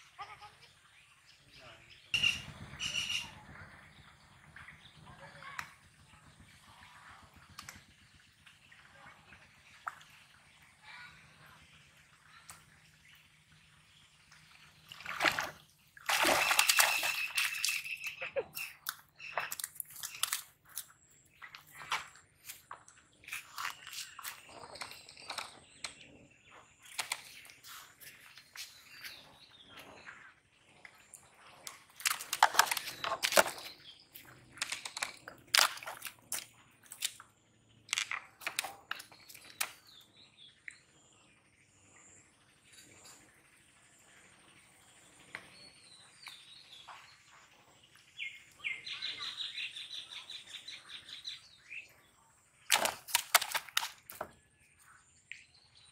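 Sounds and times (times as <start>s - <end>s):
fish splashing in water: 14.6s - 18.2s, 31.6s - 37.3s, 52.7s - 54.3s
fish flapping on grass: 52.7s - 54.0s.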